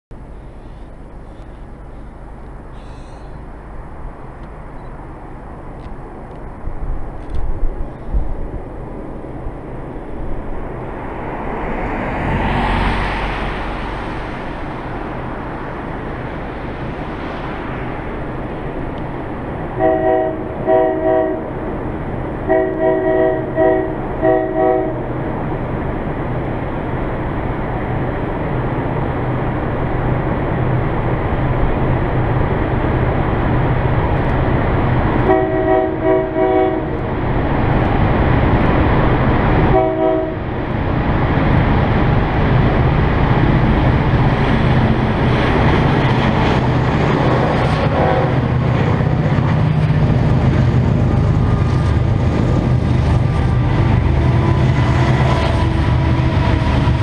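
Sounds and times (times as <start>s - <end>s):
locomotive engine drone: 0.1s - 57.0s
train air horn blasts: 2.7s - 3.5s, 19.8s - 21.5s, 22.5s - 25.0s, 35.2s - 37.0s, 39.7s - 40.4s, 47.9s - 48.4s, 53.5s - 57.0s
wind buffeting microphone: 3.7s - 20.7s, 36.2s - 57.0s.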